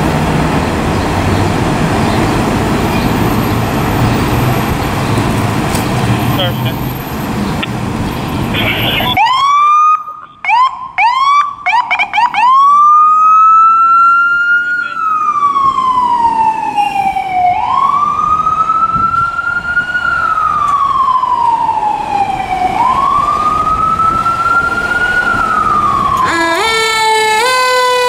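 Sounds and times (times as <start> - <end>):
emergency vehicle siren: 8.2 - 28.0.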